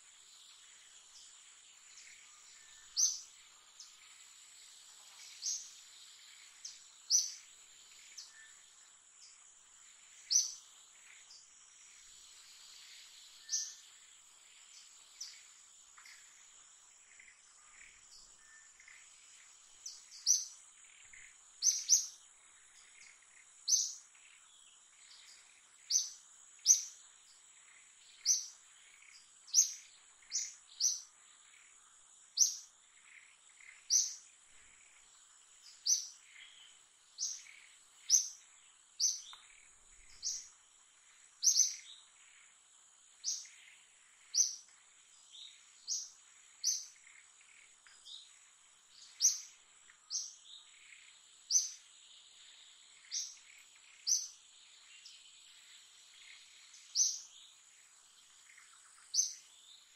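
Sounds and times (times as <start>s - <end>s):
high insect drone: 0.0s - 59.9s
birds chirping: 17.0s - 40.6s, 43.2s - 59.9s.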